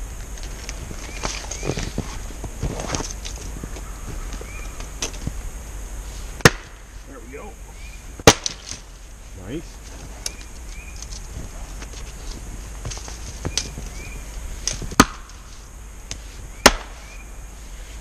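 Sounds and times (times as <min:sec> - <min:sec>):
axe chopping firewood: 0:06.4 - 0:06.8, 0:08.2 - 0:08.8, 0:14.6 - 0:15.4, 0:16.6 - 0:17.0.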